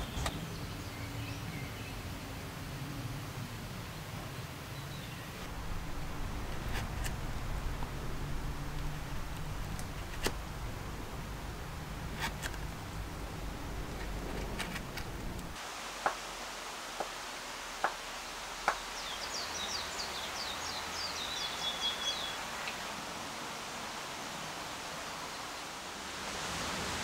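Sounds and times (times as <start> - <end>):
bird singing with trill: 19.0 - 22.4.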